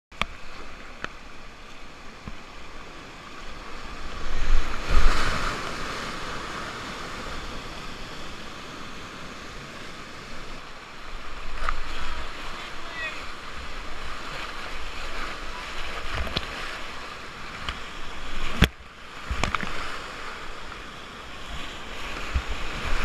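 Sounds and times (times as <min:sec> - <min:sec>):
whitewater rapids rushing: 0:02.6 - 0:23.0.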